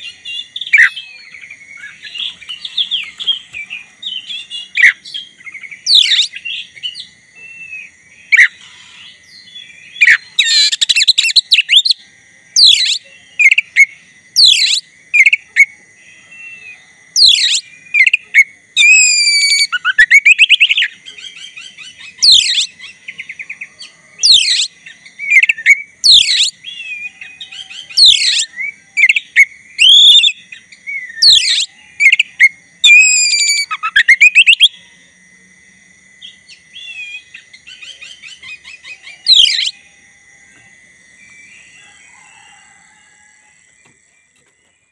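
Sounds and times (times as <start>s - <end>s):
bird singing loud whistles: 0.0s - 8.7s, 9.9s - 12.0s, 12.6s - 15.4s, 16.4s - 18.2s, 18.8s - 22.8s, 24.2s - 34.8s, 36.8s - 39.8s
faint high hum: 0.0s - 44.9s.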